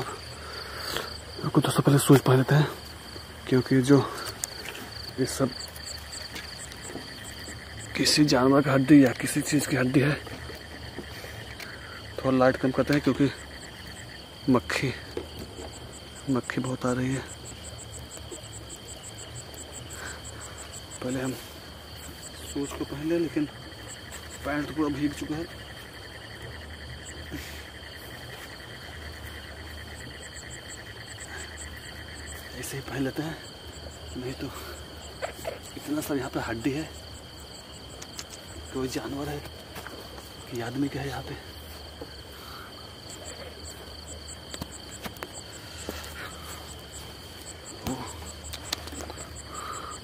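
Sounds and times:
crickets chirring: 0.0 - 50.0
insects trilling: 0.0 - 50.0
faint clicks: 37.9 - 38.5, 47.8 - 49.3.

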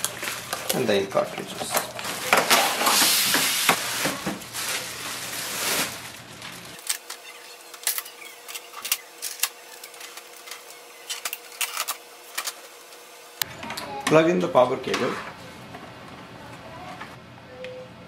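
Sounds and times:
plastic wrapping rustling: 0.0 - 12.8.

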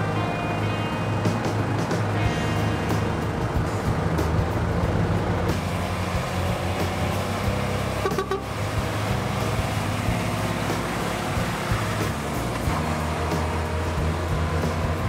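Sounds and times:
truck diesel engine: 0.0 - 15.0
short horn toot: 8.0 - 8.5.

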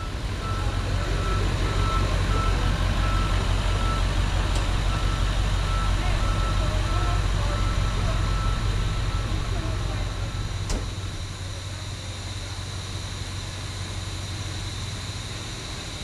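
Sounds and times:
diesel engine drone: 0.0 - 16.0
backup alarm beeping: 4.9 - 9.4.

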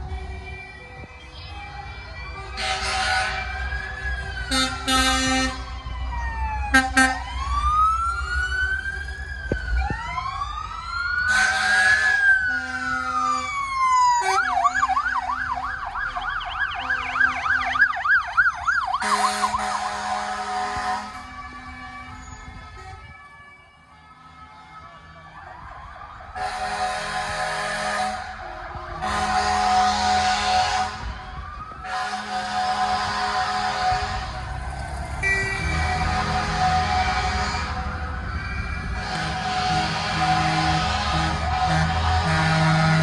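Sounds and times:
fire engine sirens wailing: 0.0 - 43.0
horn blasts: 2.6 - 3.5, 4.5 - 5.6, 19.0 - 23.1, 26.4 - 31.1, 31.8 - 34.5, 35.2 - 38.0, 38.8 - 43.0.

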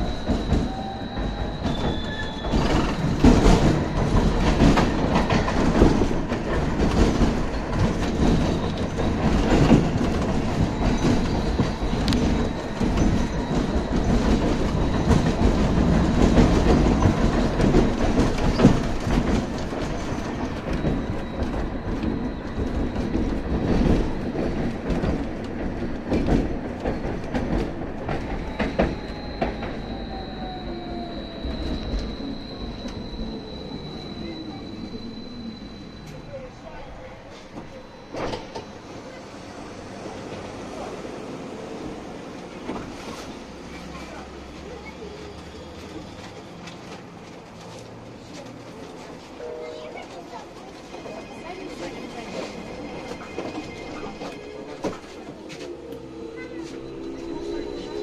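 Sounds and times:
tram wheels rumbling on rails: 0.0 - 58.0
high traction whine: 54.0 - 58.0.

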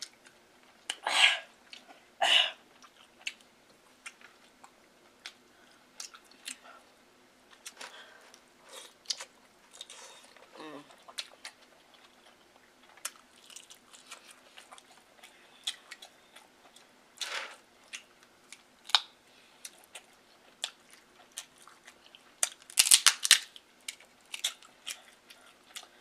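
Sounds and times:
chewing: 2.7 - 6.9, 7.5 - 22.7, 23.8 - 26.0
shellfish shell cracking: 22.4 - 24.7.

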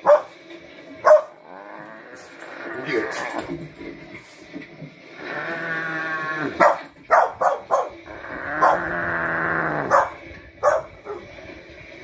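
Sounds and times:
long drawn-out wailing: 5.1 - 11.8.

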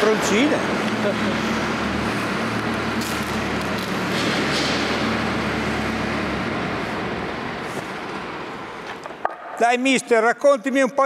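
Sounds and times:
tractor engine hum: 0.1 - 9.0.

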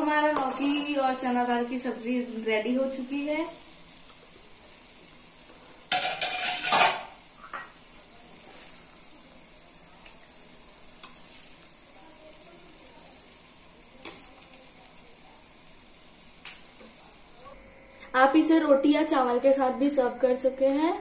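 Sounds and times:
food sizzling: 0.0 - 17.6
metal spatula scraping pan: 5.9 - 7.6.

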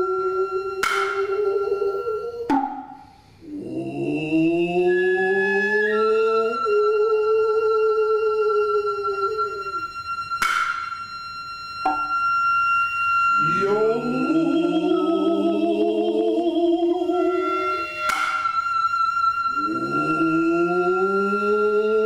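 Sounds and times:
drummers' wavering calls: 0.0 - 22.0
hand drum strokes: 0.8 - 1.8, 2.5 - 3.1, 11.8 - 12.2
flute holding high note: 4.9 - 15.6, 17.0 - 22.0.

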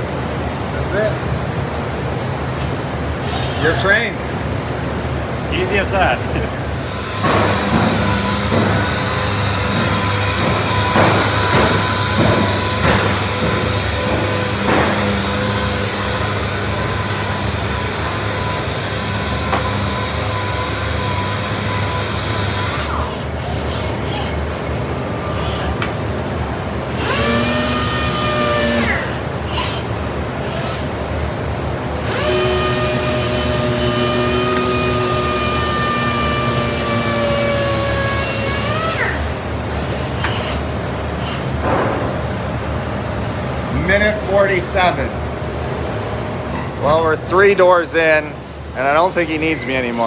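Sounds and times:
vacuum dust extraction hiss: 3.1 - 23.4, 30.1 - 50.0
sanding machine whine: 5.5 - 23.4, 26.9 - 29.4, 31.0 - 40.5.

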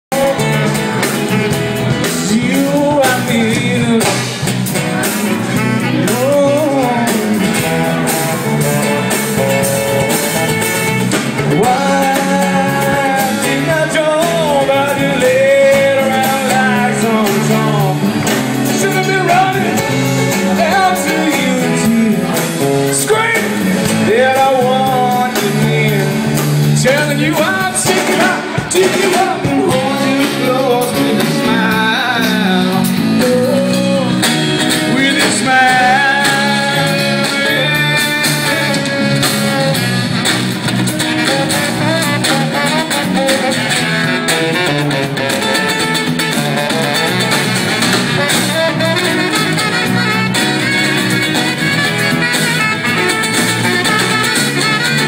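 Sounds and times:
person singing: 0.1 - 39.8
band playing: 0.1 - 55.0
low bass notes: 0.1 - 55.0.

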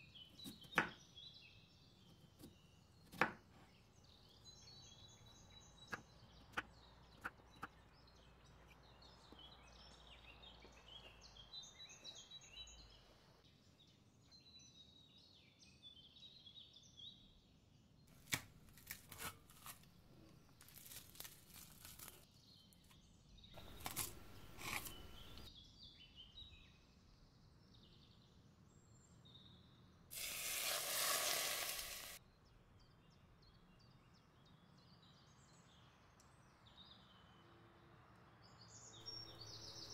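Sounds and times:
faint birds chirping: 0.0 - 18.2, 20.0 - 30.1, 32.2 - 39.9.

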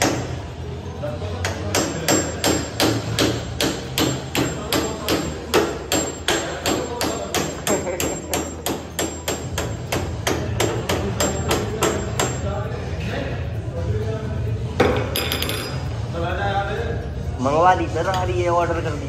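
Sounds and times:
hammer striking steel: 0.0 - 0.4, 1.4 - 12.5.

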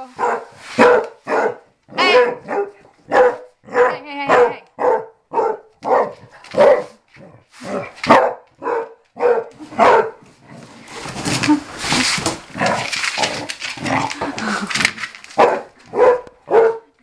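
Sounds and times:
rustling scuffling noise: 0.0 - 1.6, 5.9 - 8.2, 9.0 - 16.6
dog barking: 0.0 - 10.2, 15.4 - 17.0.

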